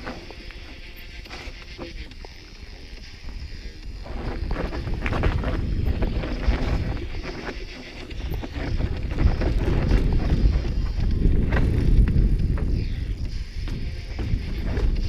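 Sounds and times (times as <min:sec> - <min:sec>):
bike rattling over bumps: 0:00.0 - 0:15.0
bike tyre rumble: 0:00.0 - 0:15.0
wind buffeting microphone: 0:03.0 - 0:15.0.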